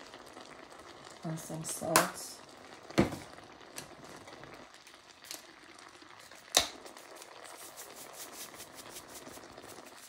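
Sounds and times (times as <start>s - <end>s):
food sizzling in pan: 0.0s - 10.0s.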